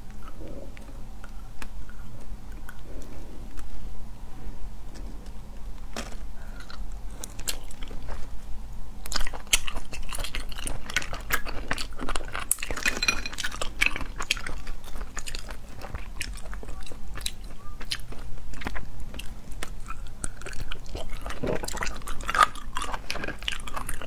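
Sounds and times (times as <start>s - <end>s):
sucking and chewing: 4.9s - 24.0s.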